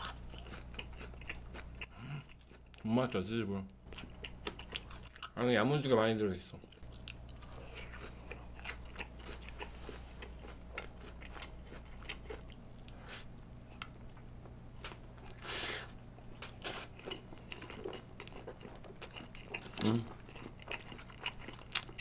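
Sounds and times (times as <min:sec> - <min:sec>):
chewing crunches and clicks: 0:00.0 - 0:02.9, 0:03.8 - 0:05.5, 0:06.6 - 0:13.1, 0:16.3 - 0:22.0.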